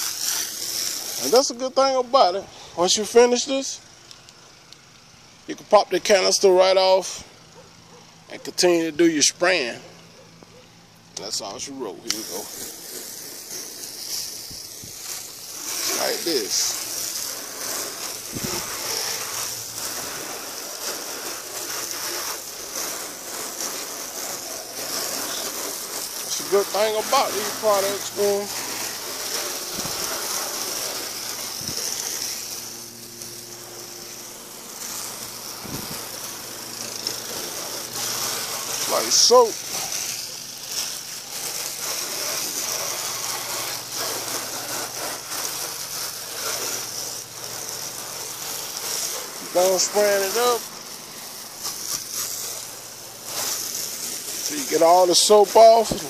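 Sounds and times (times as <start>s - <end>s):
water spray hitting truck: 0.0s - 56.0s.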